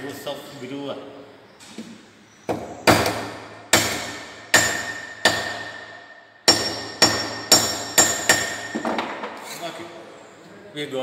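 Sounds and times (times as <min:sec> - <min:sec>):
wooden mallet striking metal: 0:02.5 - 0:09.3.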